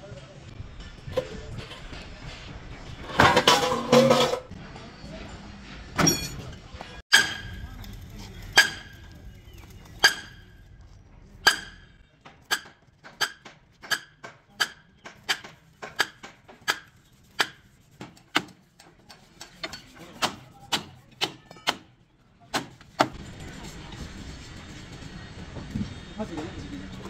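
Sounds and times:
hammer clanging on steel: 6.0s - 7.6s, 8.5s - 9.0s, 10.0s - 10.5s, 11.4s - 17.6s, 18.2s - 21.9s.

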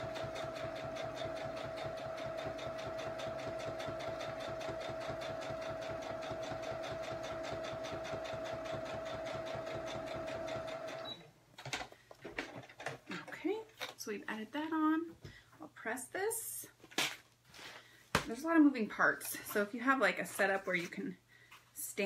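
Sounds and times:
sewing machine stitching: 0.0s - 11.2s.

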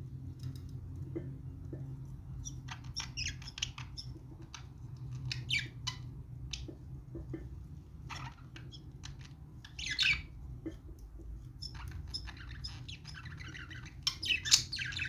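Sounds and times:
budgerigars chirping: 2.4s - 6.7s, 8.1s - 10.3s, 11.6s - 15.0s.

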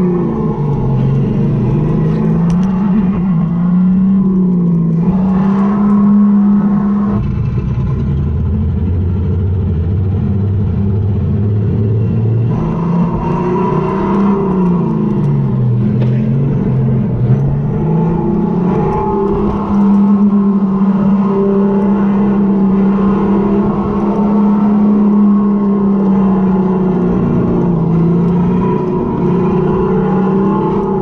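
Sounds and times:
electric go-kart motor whining: 0.0s - 8.5s, 12.5s - 31.0s.

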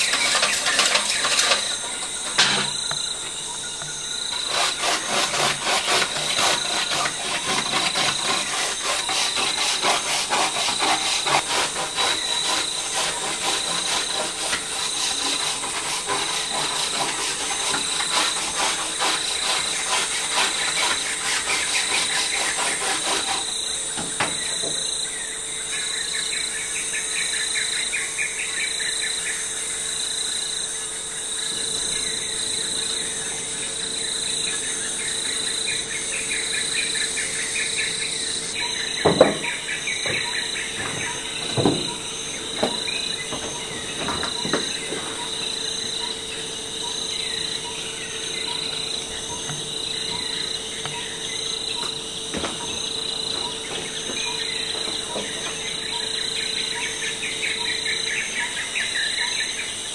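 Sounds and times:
crickets and insects chirping: 0.0s - 59.9s
sharp knocks: 39.0s - 45.2s.

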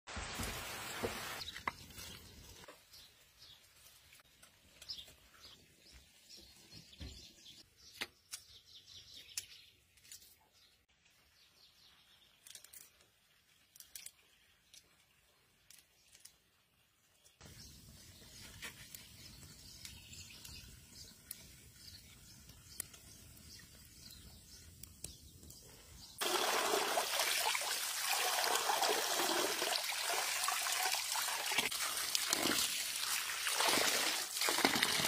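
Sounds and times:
bean pods snapping open: 12.3s - 15.0s.

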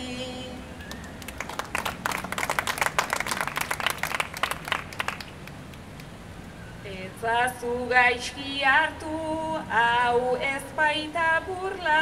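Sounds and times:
audience applauding: 0.9s - 5.7s.

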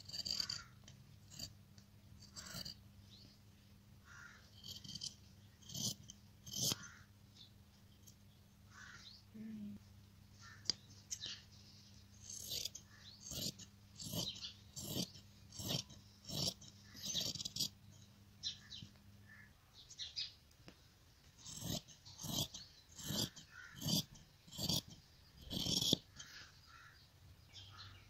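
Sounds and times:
tool rasping against fabric: 0.0s - 1.6s, 2.2s - 2.8s, 4.2s - 7.0s, 12.0s - 18.1s, 21.3s - 26.4s
low electrical hum: 0.0s - 28.0s.

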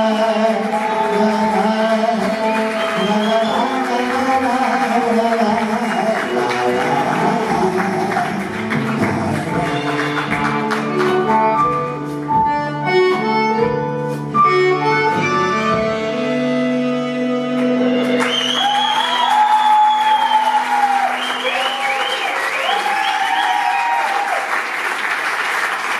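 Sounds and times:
audience applause and cheering: 0.0s - 11.9s, 17.9s - 25.9s
saxophone playing: 0.0s - 23.9s
double bass playing: 3.5s - 18.1s.

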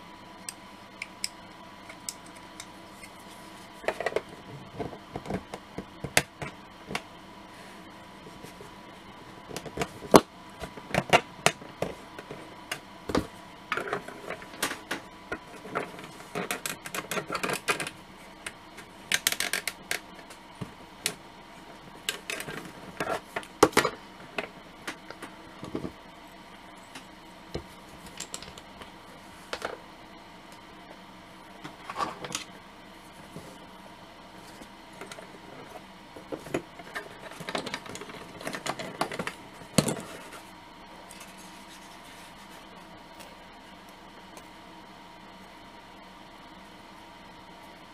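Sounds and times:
plastic parts scraping: 36.4s - 40.4s
plastic parts clicking and tapping: 36.5s - 40.1s
rustling scrape: 41.2s - 42.7s.

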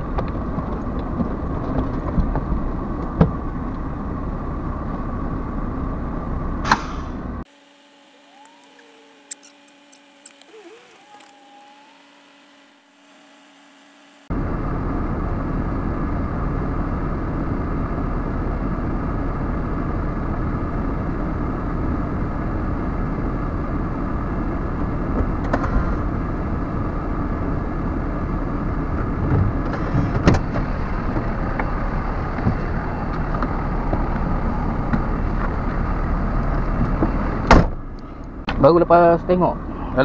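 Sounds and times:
diesel truck engine idling: 14.3s - 40.0s.

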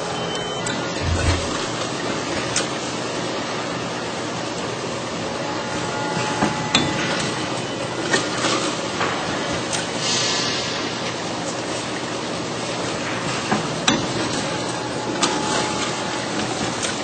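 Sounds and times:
filling machine clattering: 13.9s - 17.0s.

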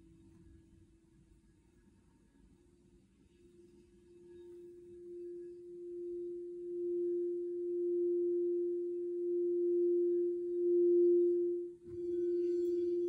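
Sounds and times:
singing bowl tone: 3.2s - 13.0s.

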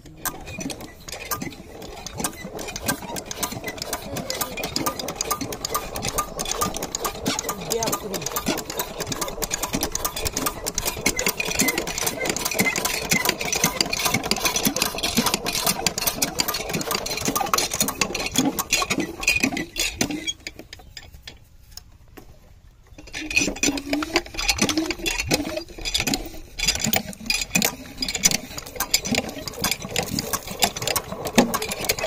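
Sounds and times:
diesel engine clattering: 0.0s - 20.5s.

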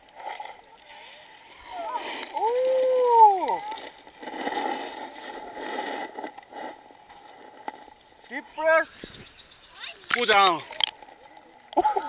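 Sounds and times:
muffled underwater water rush: 0.0s - 9.5s.

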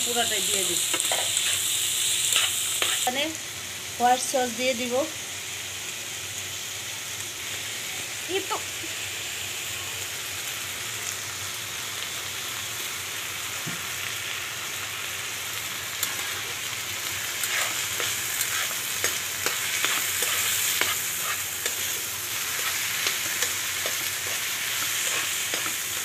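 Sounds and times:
food sizzling in oil: 0.0s - 26.0s
spoon scraping a pan: 0.9s - 1.7s, 2.3s - 3.1s, 17.4s - 26.0s.

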